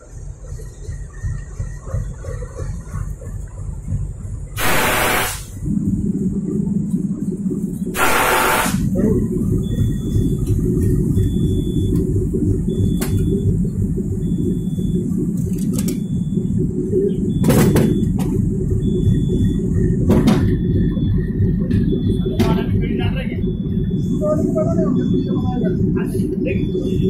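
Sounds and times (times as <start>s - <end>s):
locomotive engine rumbling: 0.0s - 27.0s
short hiss: 4.6s - 5.5s
high beeps: 8.0s - 27.0s.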